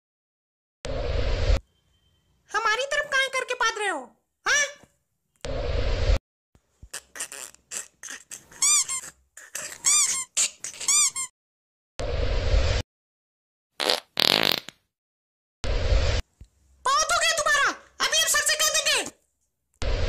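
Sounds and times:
squeaky farts: 6.9 - 11.3, 13.8 - 14.8.

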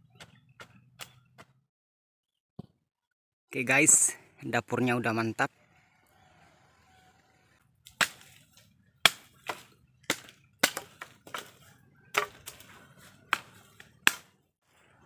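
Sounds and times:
machete chopping dry branches: 7.8 - 14.4.

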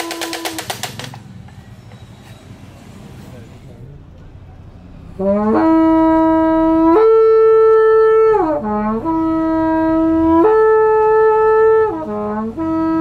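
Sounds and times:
long trumpet call: 0.0 - 1.1, 5.0 - 13.0.

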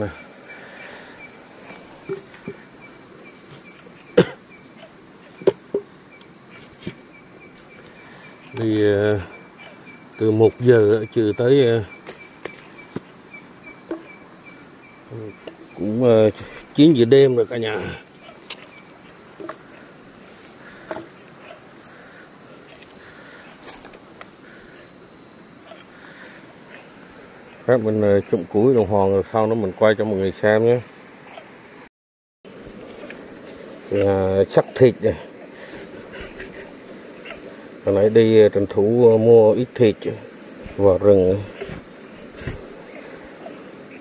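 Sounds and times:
insects trilling: 0.0 - 31.9, 32.5 - 44.0
footsteps in sandals on dirt: 11.8 - 13.2.

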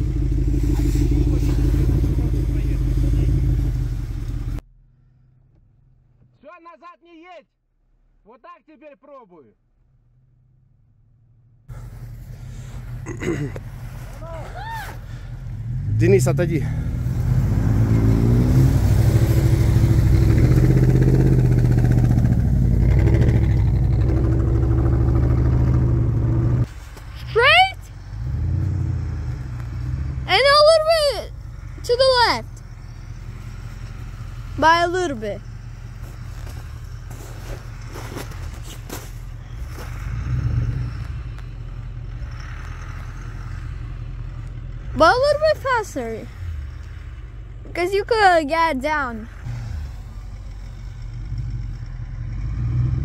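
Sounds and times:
truck engine running under load: 0.0 - 4.6, 15.0 - 26.8, 27.9 - 53.0
light crunches in snow: 11.7 - 15.2, 35.8 - 41.5.

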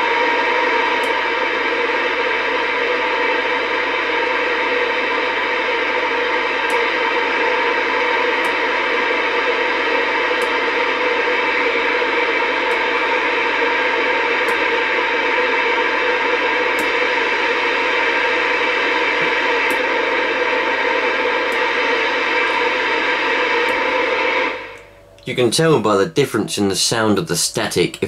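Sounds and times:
radio static hiss: 5.8 - 28.0.

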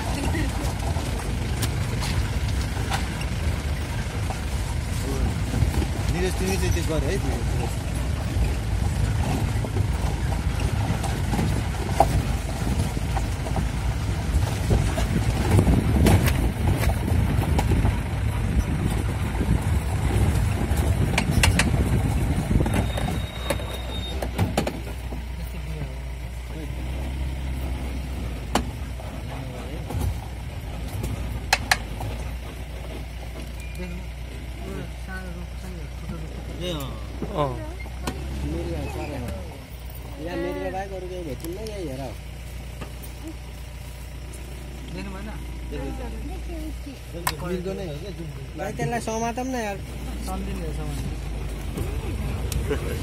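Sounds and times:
vehicle engine and road noise: 0.0 - 53.0.

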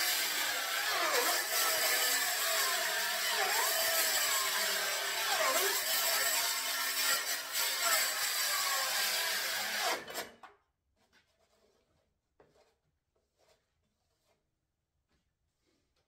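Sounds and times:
circular saw cutting plastic pipe: 0.0 - 10.5.

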